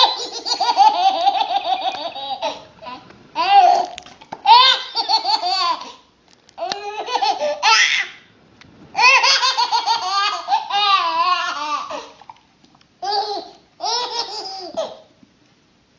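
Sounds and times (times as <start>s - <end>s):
baby giggling: 0.0s - 6.0s, 6.6s - 8.1s, 9.0s - 12.2s, 13.0s - 15.1s.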